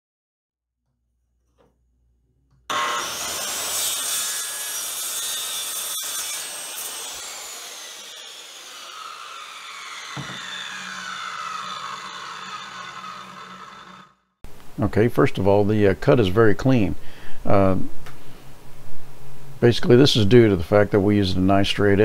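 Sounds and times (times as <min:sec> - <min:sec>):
circular saw whining: 0:02.7 - 0:14.2
saw cutting wooden board: 0:02.7 - 0:14.2
thump: 0:10.2 - 0:10.5.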